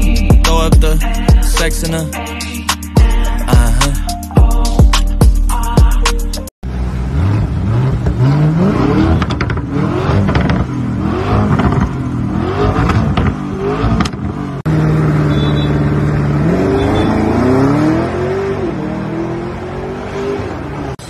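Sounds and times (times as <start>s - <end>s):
car accelerating away: 6.7s - 21.0s
car engine revving: 6.7s - 21.0s
exhaust cracks: 7.9s - 14.4s.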